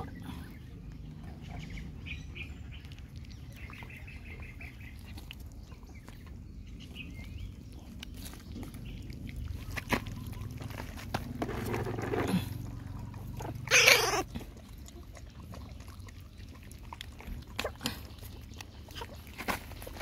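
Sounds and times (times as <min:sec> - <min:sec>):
puppies lapping milk: 0:00.0 - 0:20.0
high puppy cry: 0:13.4 - 0:14.3
puppy whimpering: 0:13.4 - 0:14.3.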